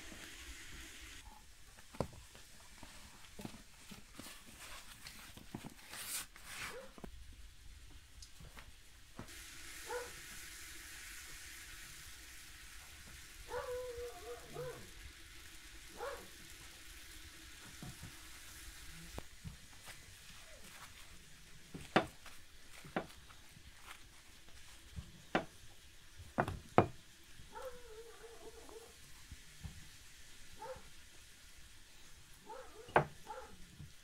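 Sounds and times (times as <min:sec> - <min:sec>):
faint steady hiss: 0:00.0 - 0:34.0
cloth towels rustling: 0:02.7 - 0:07.0, 0:19.6 - 0:24.9.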